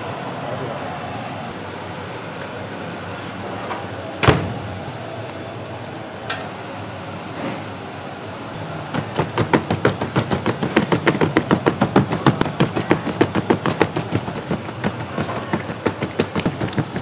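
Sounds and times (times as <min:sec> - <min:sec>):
cleaver chopping meat on wood: 0:09.0 - 0:17.0.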